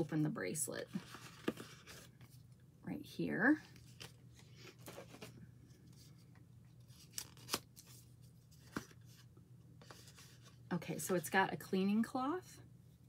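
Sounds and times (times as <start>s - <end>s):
paper and plastic packaging rustling: 0.8s - 2.4s, 3.7s - 6.2s.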